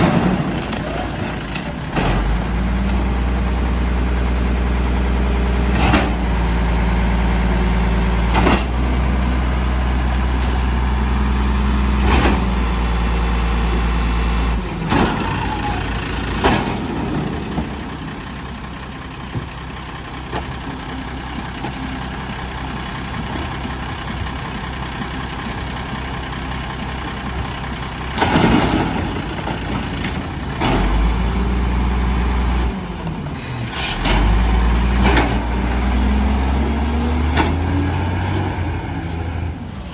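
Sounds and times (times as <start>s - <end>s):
bins clunking and banging: 0.0s - 3.0s, 14.7s - 18.2s, 28.1s - 31.1s
garbage truck diesel engine idling: 0.0s - 39.9s.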